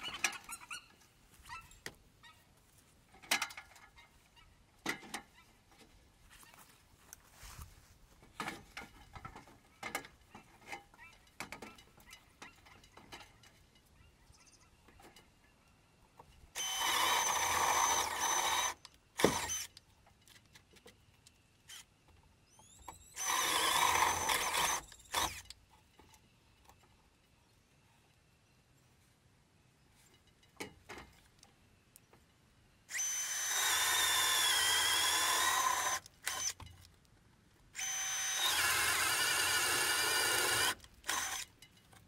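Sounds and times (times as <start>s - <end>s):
power drill boring through wood: 16.6s - 19.7s, 22.6s - 25.5s, 32.9s - 36.6s, 37.8s - 41.5s.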